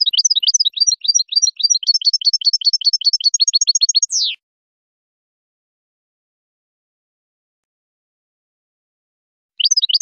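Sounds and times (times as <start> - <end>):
bird twittering song: 0.0 - 4.4, 9.6 - 10.0.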